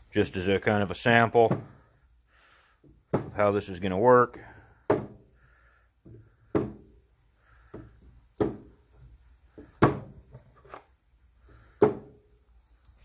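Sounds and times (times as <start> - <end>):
plastic bottles knocking on workbench: 4.9 - 5.2.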